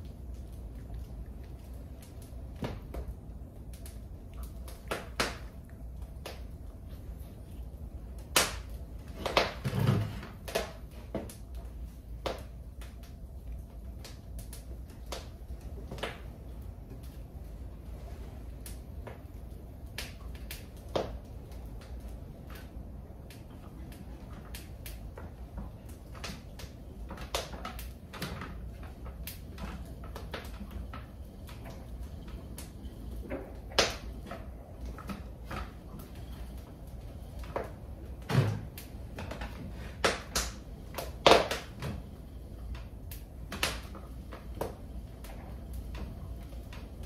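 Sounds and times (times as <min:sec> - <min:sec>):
low steady rumble: 0:00.0 - 0:47.0.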